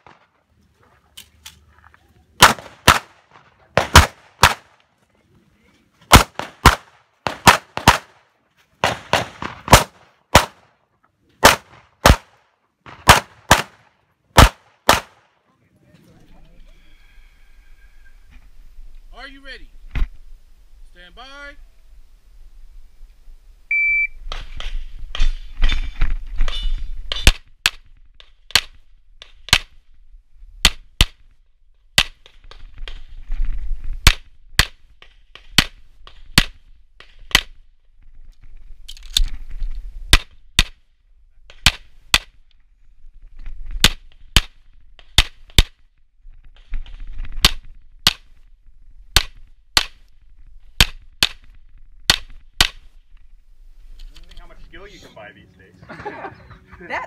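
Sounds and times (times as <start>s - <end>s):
pistol shots: 2.4s - 4.8s, 6.1s - 8.2s, 8.8s - 10.7s, 11.4s - 15.2s
shot timer beep: 23.7s - 24.2s.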